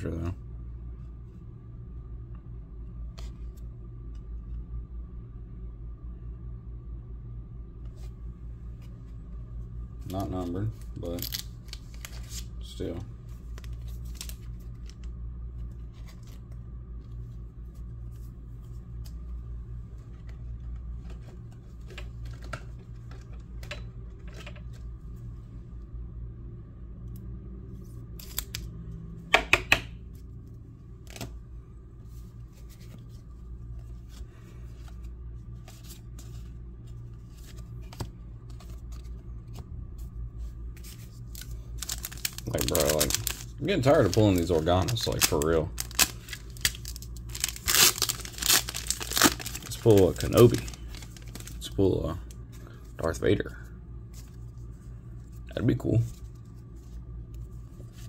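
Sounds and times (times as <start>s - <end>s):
steady low hum: 0.0s - 58.0s
trading cards flipping: 10.0s - 12.5s, 13.3s - 19.3s, 19.9s - 23.6s, 28.2s - 28.8s, 31.0s - 31.4s, 32.5s - 40.1s, 40.7s - 51.7s.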